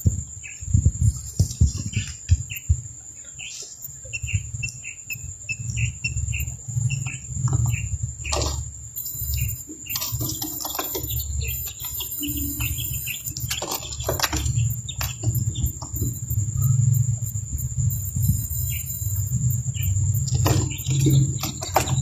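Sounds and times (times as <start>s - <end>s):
quails chirping: 0.0s - 22.0s
steady high whine: 0.0s - 22.0s
low rumble: 14.5s - 22.0s.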